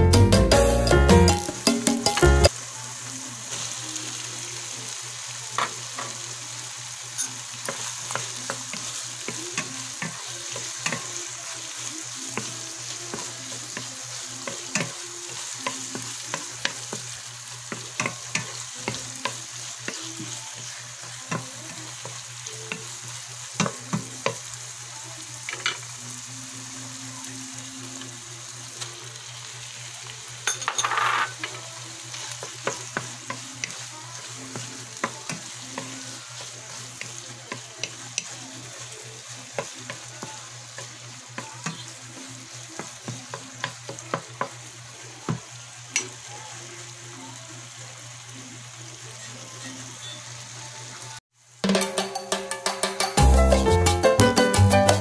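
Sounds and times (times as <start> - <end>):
sauce sizzling in frying pan: 0.0 - 55.0.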